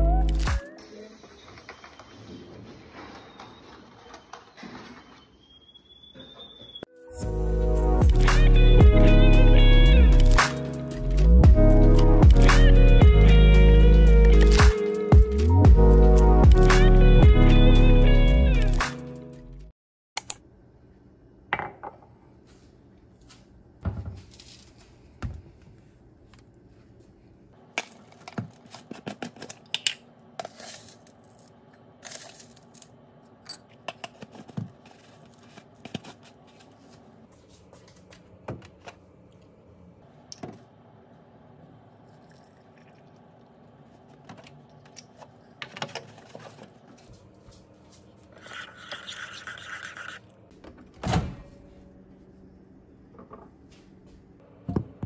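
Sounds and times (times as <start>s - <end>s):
spoon scraping: 48.3s - 50.3s.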